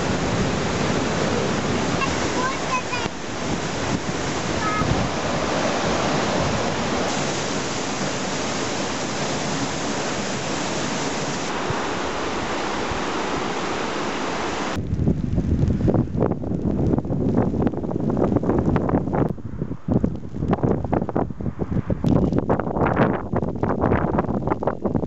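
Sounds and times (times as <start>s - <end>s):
river rapids rushing: 0.0s - 14.8s.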